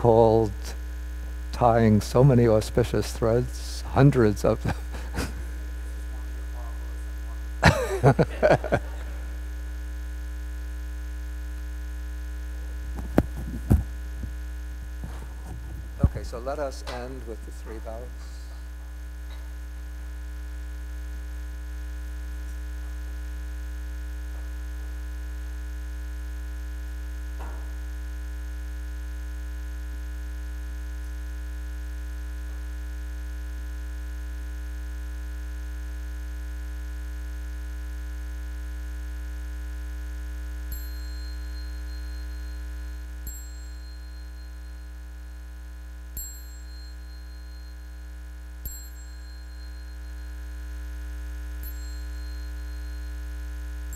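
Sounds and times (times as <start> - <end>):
electrical mains hum: 0.0 - 53.9
short high-pitched dings: 40.8 - 45.1, 46.2 - 48.1, 48.7 - 50.5, 51.6 - 53.3.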